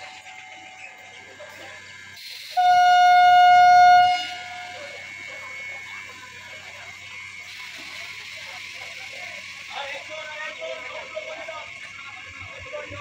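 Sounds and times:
train running past: 0.0s - 13.0s
train horn blast: 2.5s - 5.0s.

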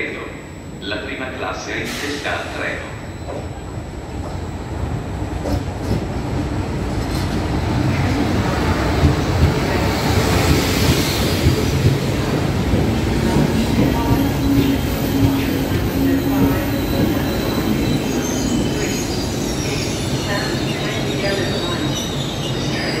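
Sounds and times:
train rumbling past: 0.0s - 23.0s.

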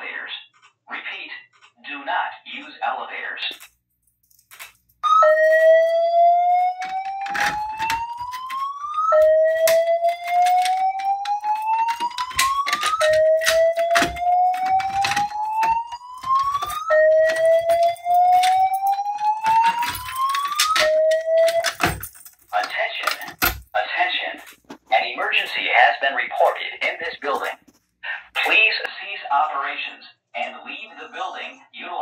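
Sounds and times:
fire alarm whooping tone: 5.0s - 22.0s
sharp clicks and knocks: 6.7s - 23.7s.

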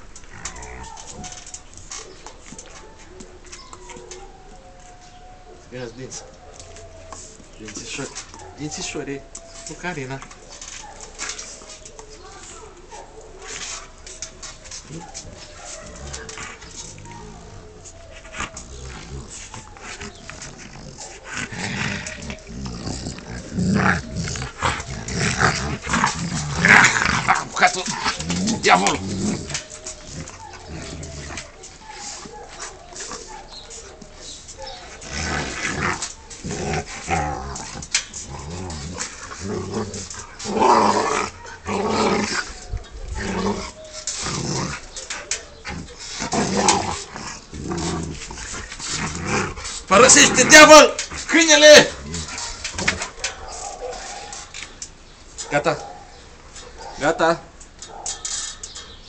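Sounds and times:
dog growling in play: 0.2s - 1.7s, 14.8s - 54.4s.

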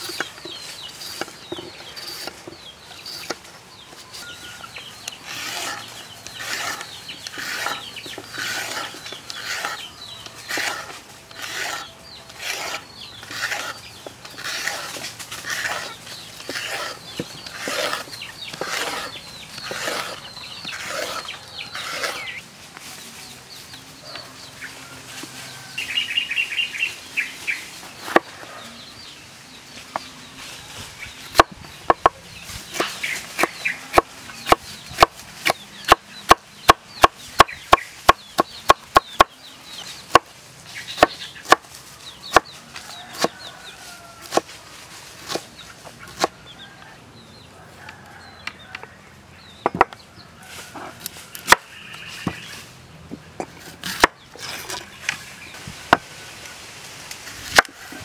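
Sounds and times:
peeler scraping carrot: 0.0s - 3.4s, 4.0s - 22.4s, 53.5s - 55.2s
cleaver chopping on wooden board: 43.1s - 43.3s, 53.5s - 54.8s.

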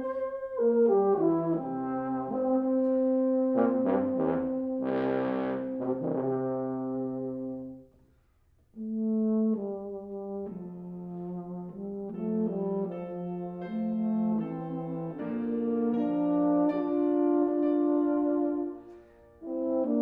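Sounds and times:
euphoniums playing in harmony: 11.7s - 20.0s.

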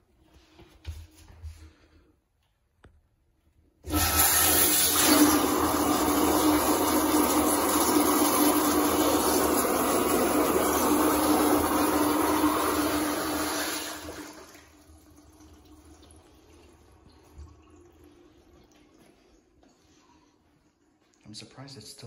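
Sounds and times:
toilet flushing water rush: 3.8s - 19.3s.

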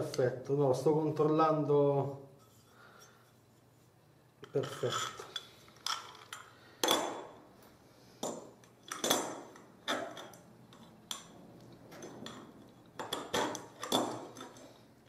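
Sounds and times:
metal rods clinking in tubes: 4.4s - 7.2s, 8.2s - 15.0s.

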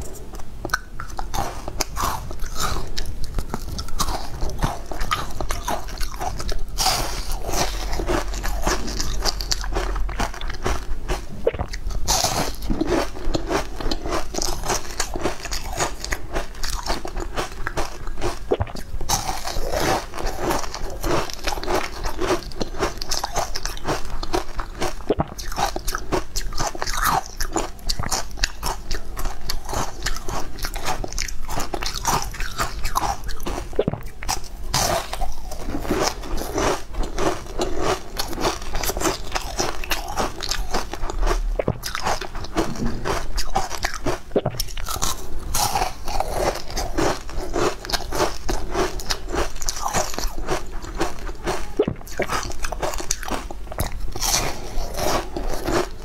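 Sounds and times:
person crunching and chewing: 0.0s - 56.0s.

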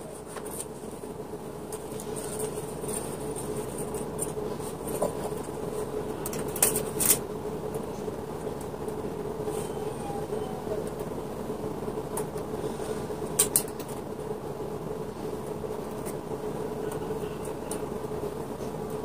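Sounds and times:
steady background hum: 0.0s - 19.0s.

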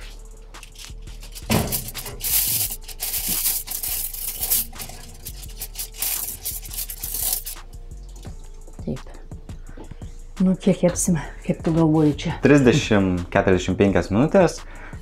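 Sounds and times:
foil rustling: 0.0s - 7.6s
dish scraping along wire rack: 0.6s - 7.6s.

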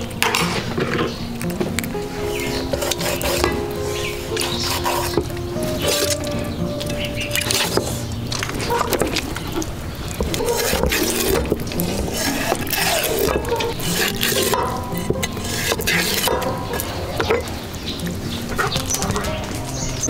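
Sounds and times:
cleaver scraping fish scales: 2.0s - 6.3s, 10.3s - 16.9s.

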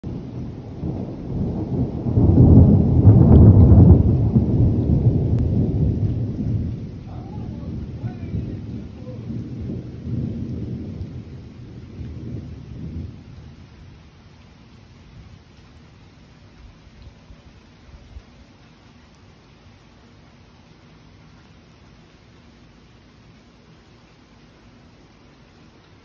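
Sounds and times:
thunder rumbling: 0.0s - 18.3s.

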